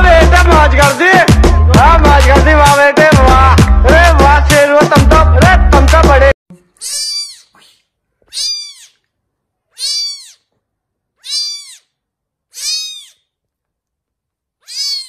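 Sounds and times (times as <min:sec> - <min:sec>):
kitten meowing: 0:06.8 - 0:09.0, 0:09.7 - 0:10.5, 0:11.2 - 0:11.9, 0:12.5 - 0:13.3, 0:14.6 - 0:15.0.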